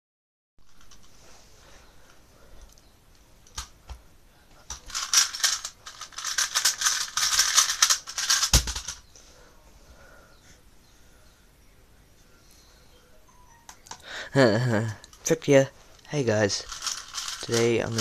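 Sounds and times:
plastic cube clicking: 0:16.7 - 0:18.0.

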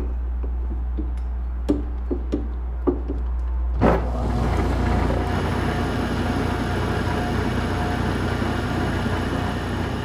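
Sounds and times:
lathe running with hiss and hum: 0:04.1 - 0:10.0.

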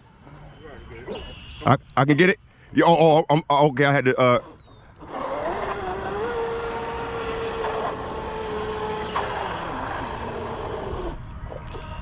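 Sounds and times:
rc boat motor whining: 0:04.2 - 0:12.0.

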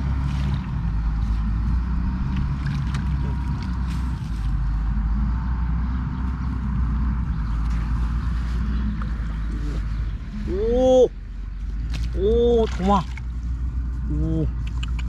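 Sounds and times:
wind rumble on microphone: 0:00.0 - 0:15.0
faint splashes in shallow water: 0:11.8 - 0:13.7.

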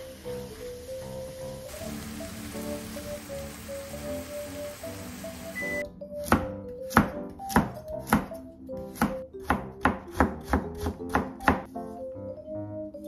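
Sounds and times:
light background music: 0:00.0 - 0:13.0
knife chopping on plastic board: 0:06.2 - 0:11.7.

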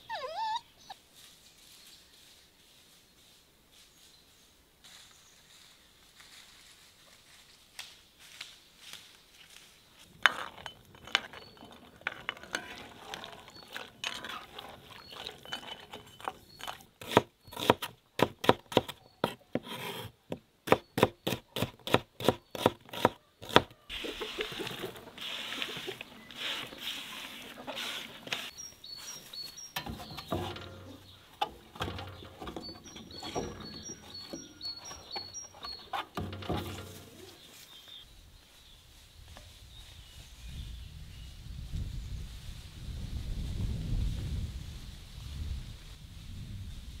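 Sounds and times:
small birds chirping: 0:00.0 - 0:01.0, 0:11.0 - 0:19.5, 0:20.7 - 0:39.0.

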